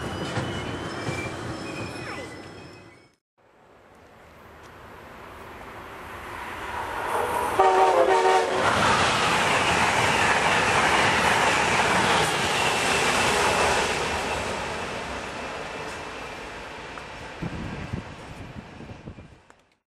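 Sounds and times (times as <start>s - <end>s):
train passing at speed: 0.0s - 19.5s
train horn chord: 7.2s - 8.6s.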